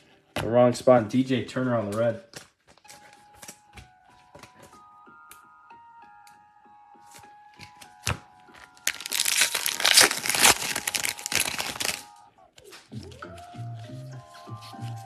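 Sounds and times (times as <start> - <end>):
foil wrapper snapping: 8.0 - 12.1
foil wrapper crackling: 8.7 - 12.2.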